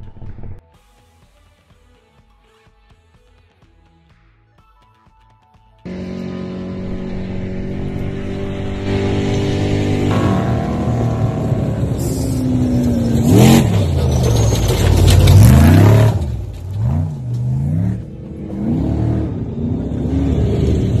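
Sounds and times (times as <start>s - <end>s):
loud rush of noise: 5.9s - 13.7s
truck engine revving: 5.9s - 21.0s.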